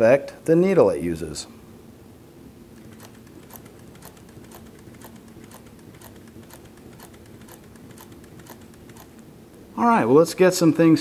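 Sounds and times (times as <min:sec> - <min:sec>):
sewing machine low hum: 0:02.7 - 0:09.3
sewing machine stitch clicks: 0:02.8 - 0:09.2.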